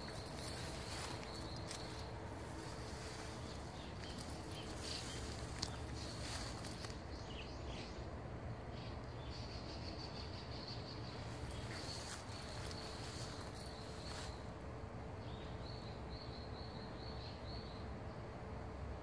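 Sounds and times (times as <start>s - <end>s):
insects chirping: 0.0s - 8.2s, 9.3s - 14.6s
steady low background noise: 0.0s - 19.0s.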